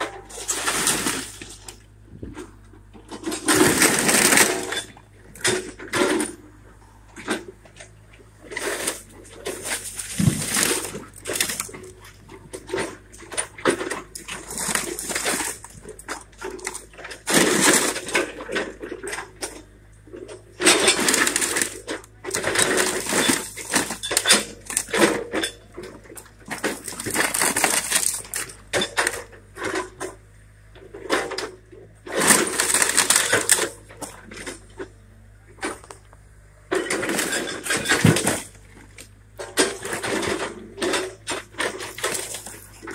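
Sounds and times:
splintering wood crashes: 0:00.0 - 0:01.8, 0:03.1 - 0:06.5, 0:08.4 - 0:30.2, 0:31.0 - 0:34.8, 0:36.7 - 0:42.9
low machine hum: 0:00.0 - 0:42.9.

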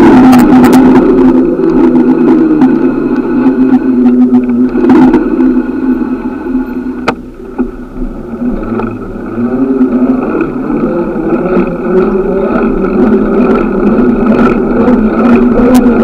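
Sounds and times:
traffic and road hum: 0:00.0 - 0:16.0
bicycle ticks and rattles: 0:06.6 - 0:16.0.

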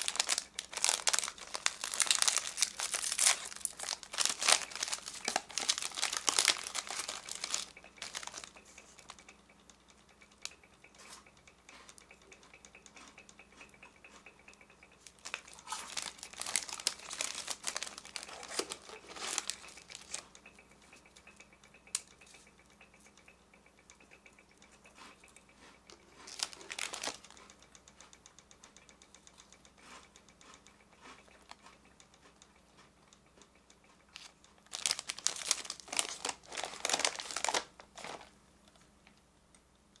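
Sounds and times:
plastic wrapper crinkling: 0:00.0 - 0:09.2, 0:15.0 - 0:20.3, 0:26.2 - 0:27.4, 0:34.1 - 0:38.3.

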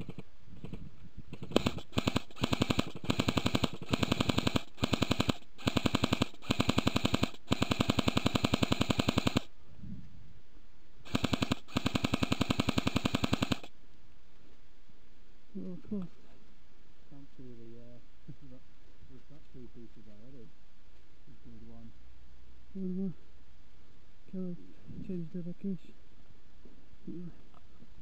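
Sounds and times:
airsoft rifles firing bursts: 0:00.0 - 0:09.5, 0:11.0 - 0:13.8.

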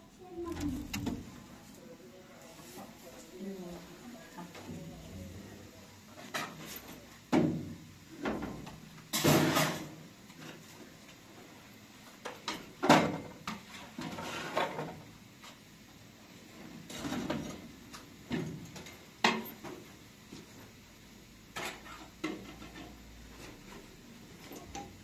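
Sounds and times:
kitchenware knocks and clatters: 0:07.3 - 0:10.0, 0:12.2 - 0:15.0, 0:16.9 - 0:17.7.

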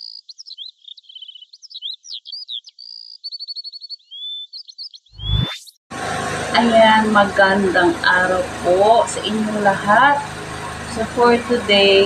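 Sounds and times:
bird trills: 0:00.0 - 0:05.4
birds chirping: 0:00.0 - 0:05.4, 0:06.0 - 0:12.0.

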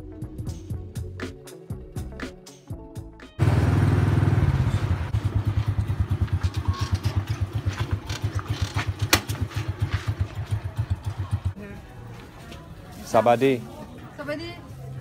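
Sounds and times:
small motorbike engine putter: 0:06.2 - 0:09.7.

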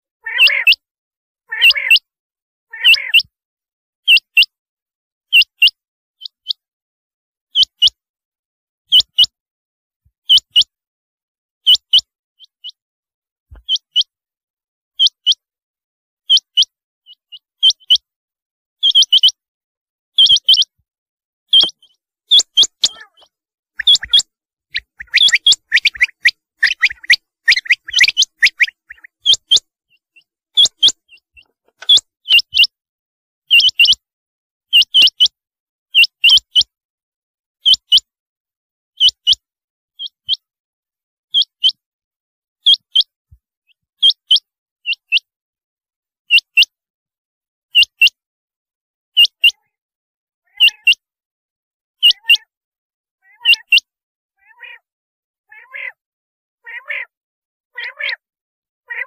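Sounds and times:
quail calling: 0:00.2 - 0:00.8, 0:01.5 - 0:02.1, 0:02.7 - 0:03.3, 0:13.5 - 0:14.1, 0:18.8 - 0:19.4, 0:20.2 - 0:20.7, 0:21.5 - 0:32.7, 0:33.5 - 0:34.0, 0:50.5 - 0:51.0, 0:52.0 - 0:52.5, 0:53.2 - 0:53.8, 0:54.4 - 0:54.9, 0:55.5 - 0:56.0, 0:56.6 - 0:57.2, 0:57.8 - 0:58.2.

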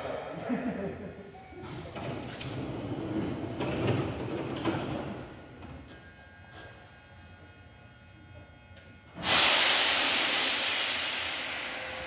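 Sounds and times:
train doors closing: 0:01.6 - 0:05.9, 0:09.2 - 0:12.0.

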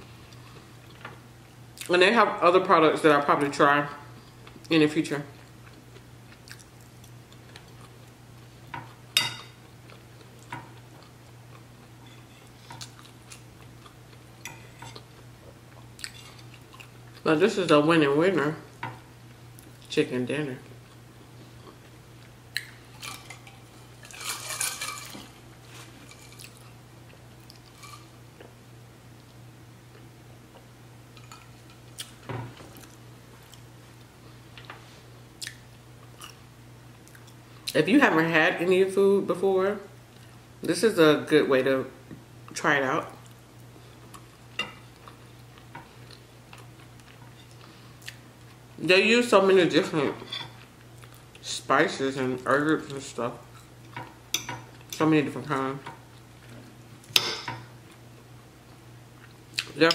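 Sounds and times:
low steady hum: 0:00.0 - 0:59.9.

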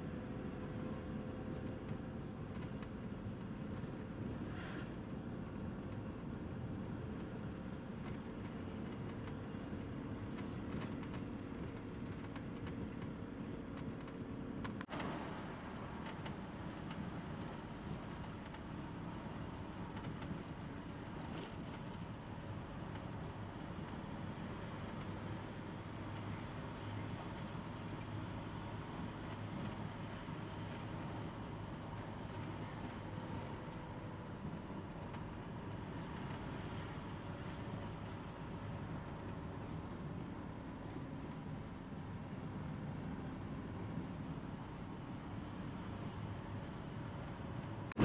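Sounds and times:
vehicle engine and road noise: 0:00.0 - 0:48.0.

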